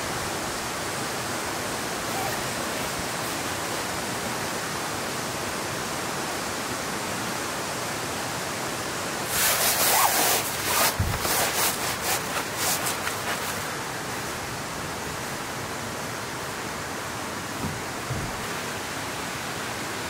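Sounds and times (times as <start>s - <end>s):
rain hissing: 0.0s - 20.0s
crackly rustling: 9.3s - 14.5s
soft thump: 17.6s - 18.4s.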